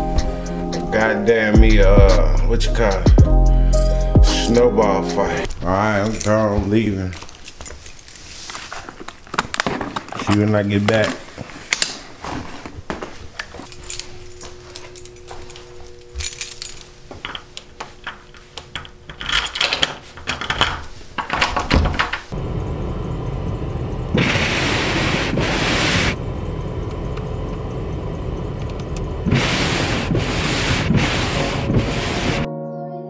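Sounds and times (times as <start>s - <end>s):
keys jangling: 5.5s - 8.3s, 13.4s - 22.3s
door clicks and knocks: 18.8s - 22.3s
hissing of snow clearing: 22.4s - 32.5s
steady rushing noise in car: 22.4s - 32.5s.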